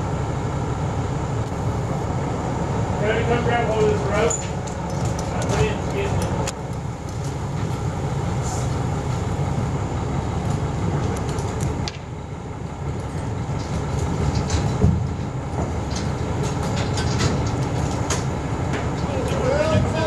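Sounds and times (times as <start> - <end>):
crane engine rumbling: 0.0 - 20.0.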